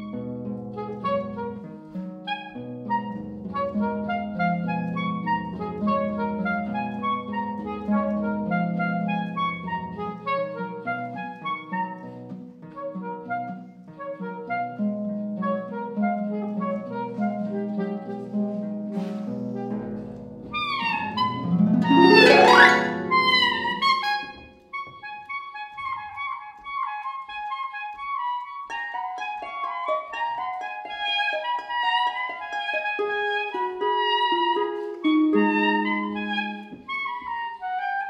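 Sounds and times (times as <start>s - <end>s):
saxophone notes: 15.6s - 26.2s, 32.8s - 38.0s
plucked harp notes: 21.0s - 24.4s.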